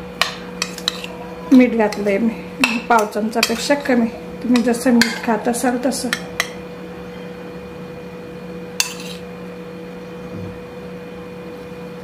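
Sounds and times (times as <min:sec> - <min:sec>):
faint hum: 0:00.0 - 0:12.0
metal utensil clinking on dish: 0:00.6 - 0:01.2, 0:01.9 - 0:05.3, 0:08.8 - 0:09.2.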